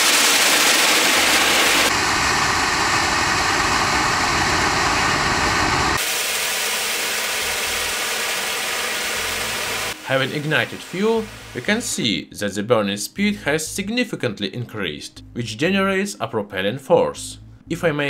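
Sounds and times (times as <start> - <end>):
rocket motor exhaust hissing: 0.0 - 12.0.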